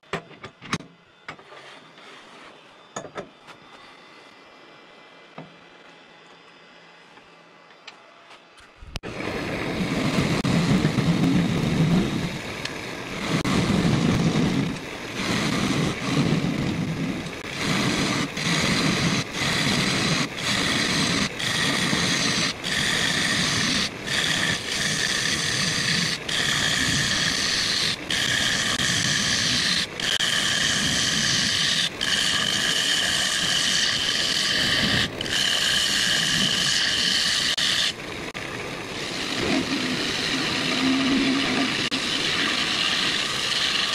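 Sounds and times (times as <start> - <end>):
lathe gouge scraping wood: 13.2 - 43.9.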